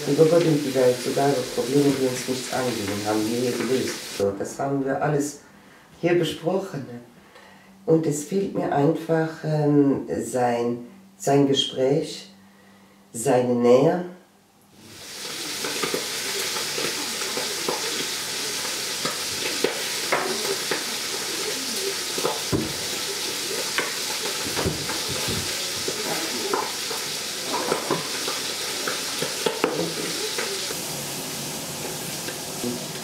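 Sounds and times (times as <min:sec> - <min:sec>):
meat sizzling in a pan: 0:00.0 - 0:04.2, 0:14.8 - 0:33.0.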